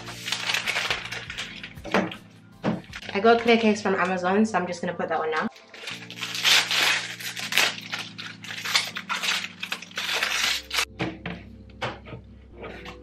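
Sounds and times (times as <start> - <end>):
plastic bag crinkling: 0.0 - 1.9, 2.9 - 3.7, 5.4 - 10.9.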